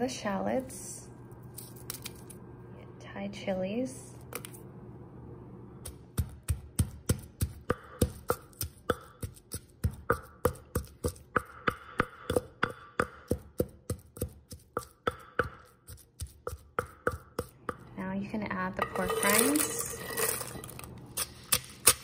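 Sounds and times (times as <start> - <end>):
pestle pounding in mortar: 5.9 - 17.9.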